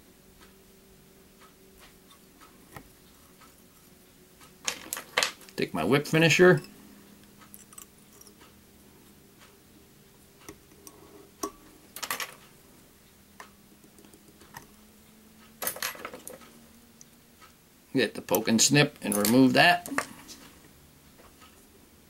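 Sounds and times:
handling noise: 4.6 - 5.6, 15.6 - 16.5.

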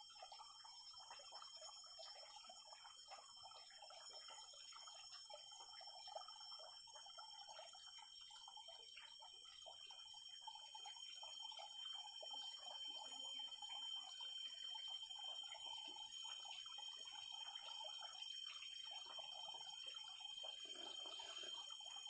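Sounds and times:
high insect drone: 18.8 - 22.0.

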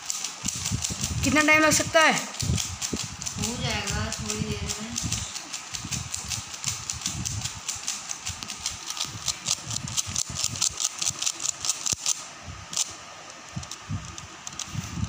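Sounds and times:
puzzle cube clicking as turned: 0.0 - 1.2, 2.4 - 12.2, 12.8 - 13.0.

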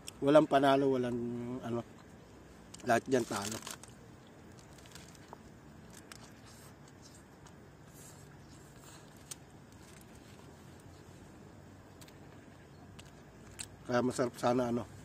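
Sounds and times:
foil wrapper crinkling: 2.7 - 7.2.

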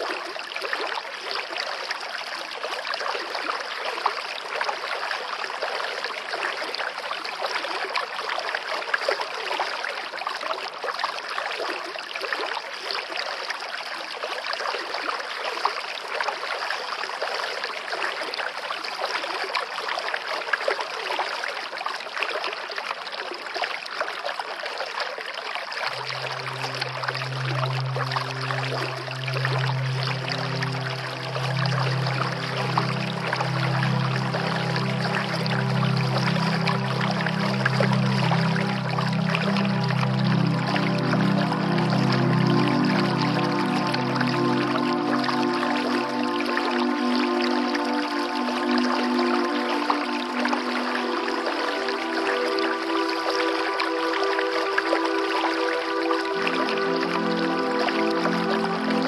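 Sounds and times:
running water: 0.0 - 59.0
low sustained music notes: 25.9 - 59.0.

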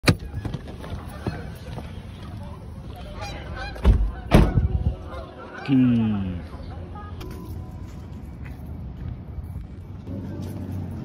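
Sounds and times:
flock of birds calling: 0.2 - 7.1.

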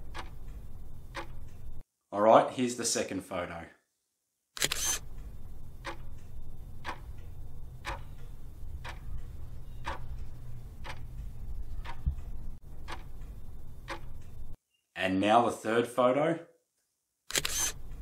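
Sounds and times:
clock ticking: 0.0 - 1.8, 5.1 - 14.6
steady low hum: 0.0 - 1.8, 4.7 - 14.6.

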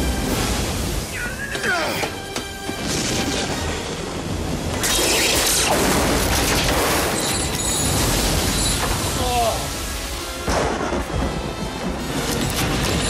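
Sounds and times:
rush of wind and water: 0.0 - 13.0.

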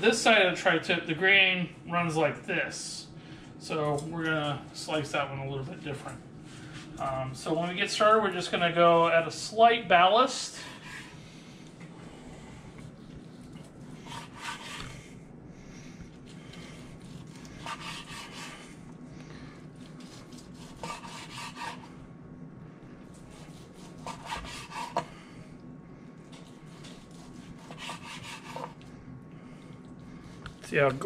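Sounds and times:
knife sawing through meat: 10.4 - 11.2, 13.9 - 15.0, 16.6 - 18.7, 19.9 - 21.9, 23.3 - 25.1, 26.4 - 28.9.

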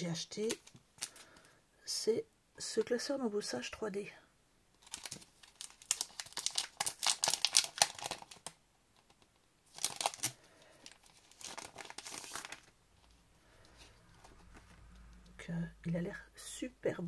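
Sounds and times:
plastic bag crinkling: 4.8 - 14.4.

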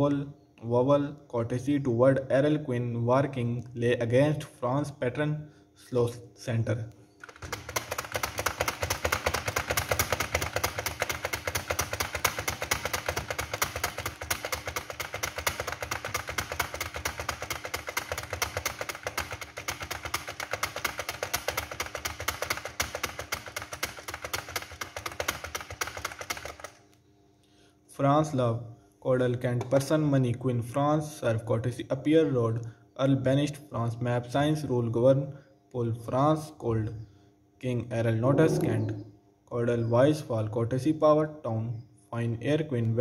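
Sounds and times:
keyboard typing clicks: 7.2 - 26.8.

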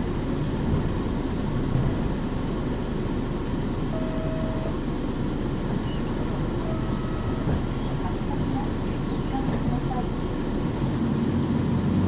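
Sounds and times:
diesel bus engine running: 0.0 - 12.0
road noise: 0.0 - 12.0
faint high tone: 3.9 - 4.7, 6.6 - 7.6.

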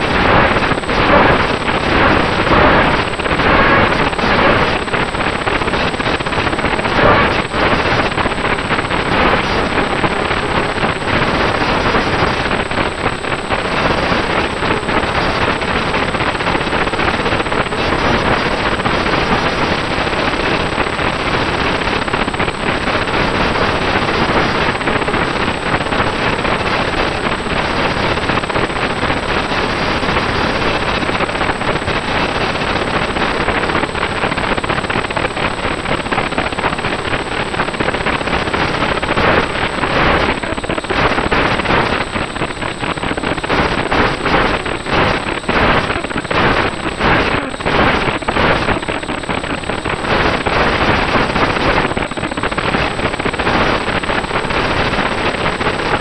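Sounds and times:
loud rushing noise: 0.0 - 7.7
high-pitched whine: 0.0 - 20.1, 37.2 - 56.0.

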